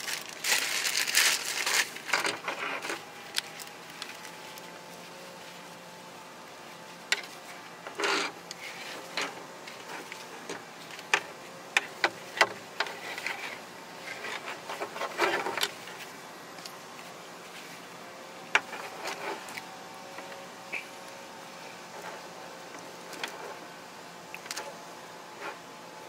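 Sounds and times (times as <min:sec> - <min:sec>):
harness straps rustling: 0:00.0 - 0:05.9.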